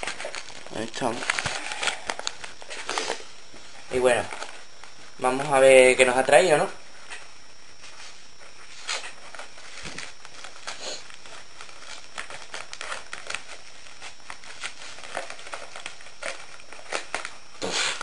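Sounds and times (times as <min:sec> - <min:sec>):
paper and plastic rustling: 0:00.0 - 0:05.7, 0:06.9 - 0:18.0
steady hiss: 0:00.0 - 0:12.1.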